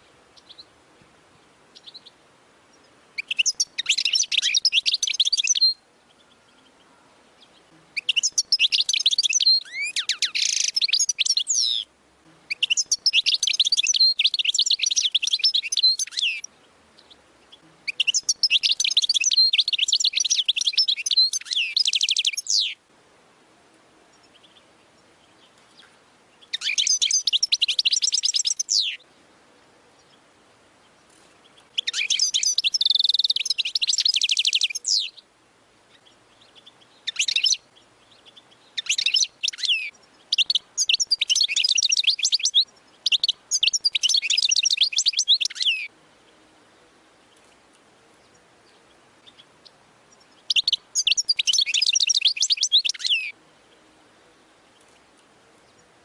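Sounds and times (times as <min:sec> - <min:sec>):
finch twittering song: 0:00.0 - 0:22.8, 0:24.1 - 0:35.3, 0:35.9 - 0:53.9.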